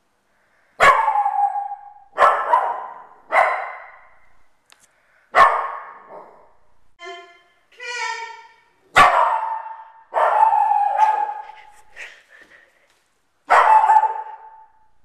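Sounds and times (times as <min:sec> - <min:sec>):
dog barking: 0:00.8 - 0:04.3, 0:05.3 - 0:06.6, 0:08.9 - 0:11.9, 0:13.5 - 0:14.9.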